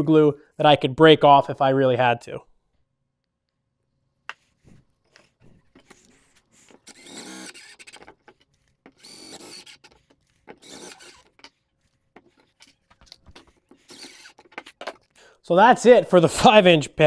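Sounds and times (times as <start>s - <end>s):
cordless driver motor whine: 6.0s - 8.2s, 8.9s - 11.4s, 13.8s - 14.5s.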